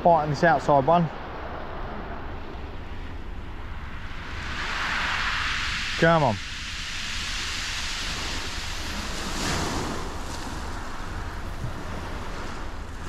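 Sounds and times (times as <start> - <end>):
wind rumbling on microphone: 0.0 - 13.0
small waves washing onto shingle: 4.1 - 13.0.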